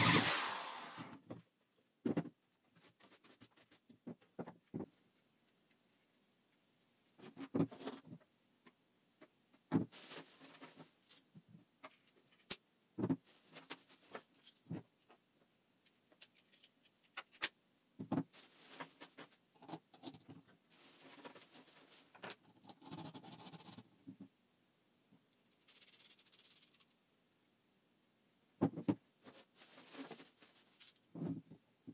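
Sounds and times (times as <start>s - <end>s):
rustling: 9.8s - 11.2s, 13.2s - 15.2s, 18.3s - 19.4s, 20.4s - 22.4s, 29.2s - 31.5s.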